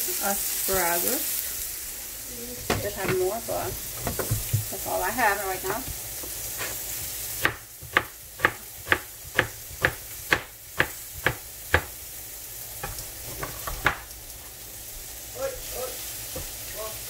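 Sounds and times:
frying pan sizzling: 0:00.0 - 0:17.0
knife chopping onion on cutting board: 0:05.6 - 0:12.0, 0:12.8 - 0:14.1.

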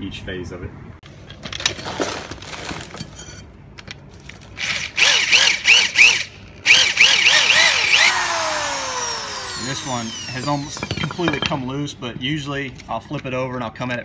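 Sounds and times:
drill boring into rubber: 0:04.6 - 0:11.6.

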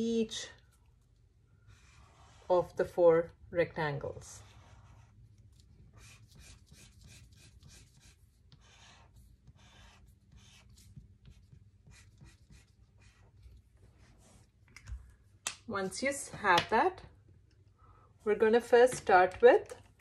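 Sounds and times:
felt-tip marker scratching on paper: 0:01.7 - 0:02.8, 0:04.2 - 0:14.1.

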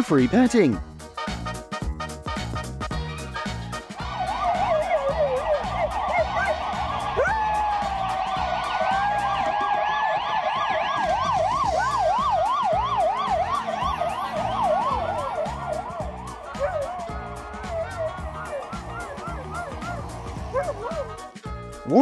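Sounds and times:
dog howling: 0:04.0 - 0:11.1, 0:11.8 - 0:21.3
emergency vehicle siren wailing: 0:04.0 - 0:21.3.

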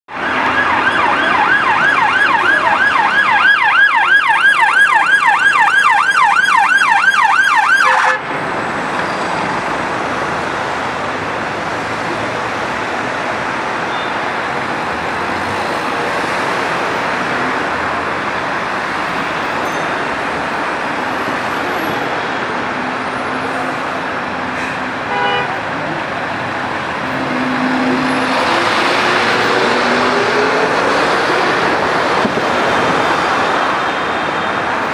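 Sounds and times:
city traffic: 0:00.0 - 0:34.9
siren yelping: 0:00.1 - 0:08.2.

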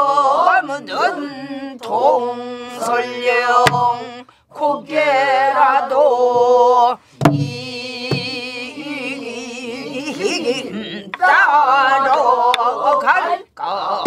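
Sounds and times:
person singing with heavy vibrato: 0:00.0 - 0:14.0
barrel drum strokes: 0:03.6 - 0:04.0, 0:07.2 - 0:08.4.

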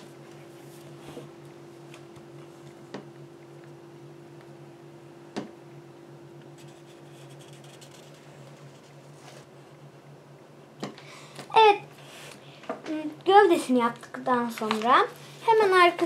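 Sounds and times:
steady low hum: 0:00.0 - 0:16.0
marker scratching on paper: 0:06.6 - 0:09.4.

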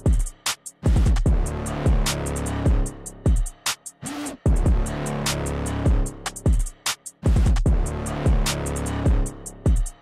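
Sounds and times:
hip hop beat: 0:00.0 - 0:10.0
deep kick drums: 0:00.9 - 0:03.6, 0:04.5 - 0:05.1, 0:05.9 - 0:10.0.

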